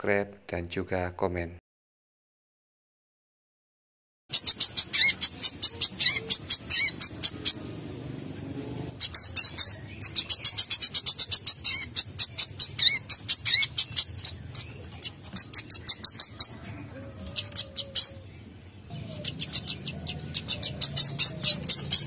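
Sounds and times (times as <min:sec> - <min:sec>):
bird singing sharp high chirps: 0:04.3 - 0:16.6, 0:17.3 - 0:22.0.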